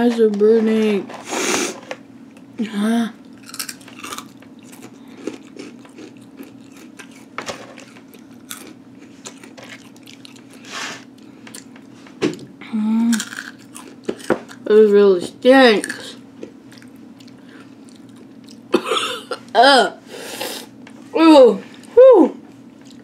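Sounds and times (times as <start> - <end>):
faint steady hum: 0.0 - 23.0
chewing crunchy chips: 3.2 - 11.9, 13.0 - 14.7, 15.8 - 18.8.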